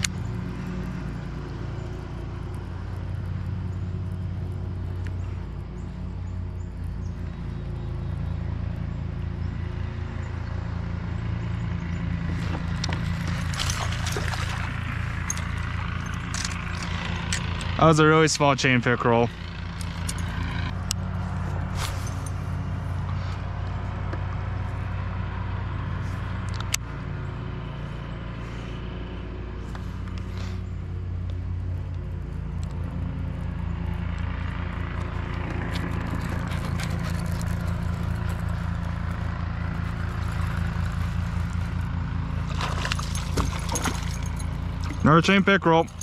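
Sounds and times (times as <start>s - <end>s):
fish splashing at surface: 12.9s - 17.0s, 42.4s - 45.0s.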